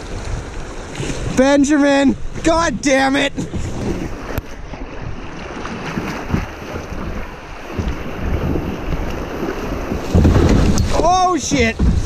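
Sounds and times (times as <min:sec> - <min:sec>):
river water rushing and splashing: 0:00.0 - 0:12.0
wind buffeting microphone: 0:00.0 - 0:12.0.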